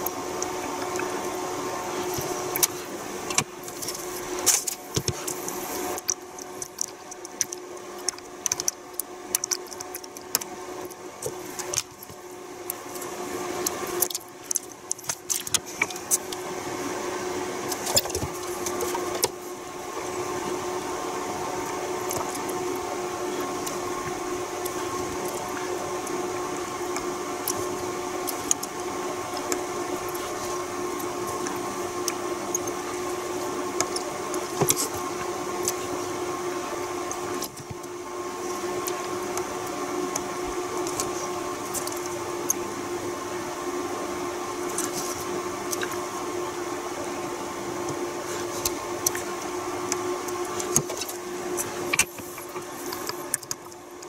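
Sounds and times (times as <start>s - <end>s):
steady hum: 0.0s - 54.0s
circuit board clicks and rattles: 6.0s - 10.5s.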